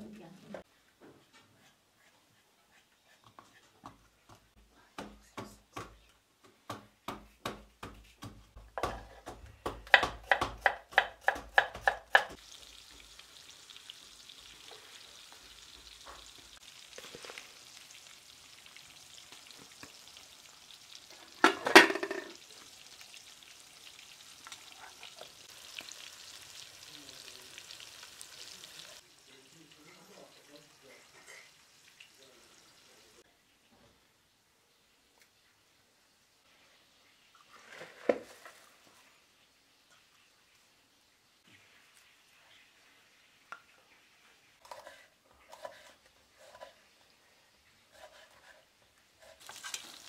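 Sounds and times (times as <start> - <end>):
pestle pounding in wooden mortar: 6.7 - 12.4
fish frying in oil: 12.2 - 33.2, 49.3 - 50.0.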